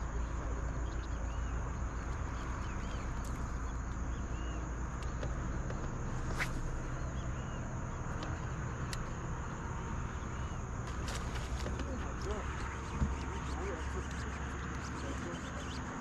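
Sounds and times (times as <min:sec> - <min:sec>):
bird chirps: 0:00.0 - 0:05.2, 0:11.8 - 0:16.0
insect drone: 0:00.0 - 0:16.0.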